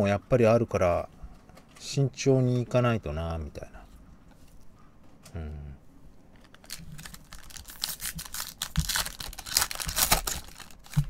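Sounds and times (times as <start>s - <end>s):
foil wrapper tearing and crinkling: 6.4s - 11.0s.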